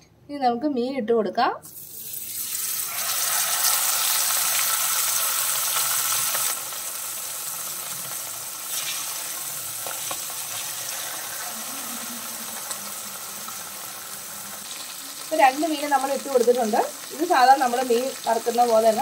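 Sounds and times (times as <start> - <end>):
hot oil sizzling: 1.7 - 19.0.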